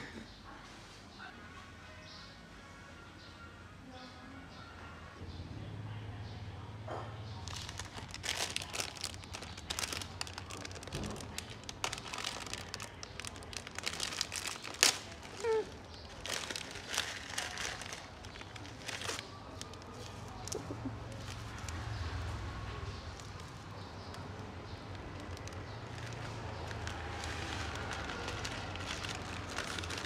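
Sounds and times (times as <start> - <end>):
plastic packet crinkling: 7.4 - 21.8, 23.1 - 30.0.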